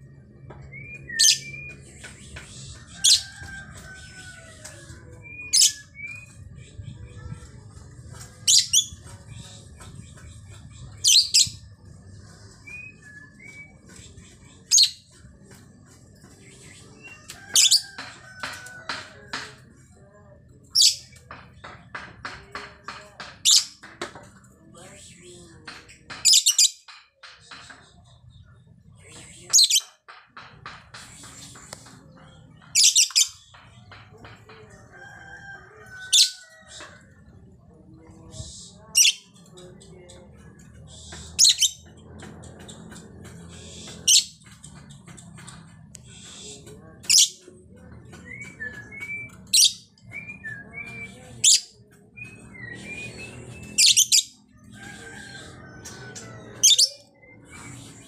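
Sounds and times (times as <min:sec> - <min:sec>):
bird chirps and twitters: 0:00.1 - 0:04.0, 0:05.2 - 0:18.6, 0:25.9 - 0:34.1, 0:38.4 - 0:58.0.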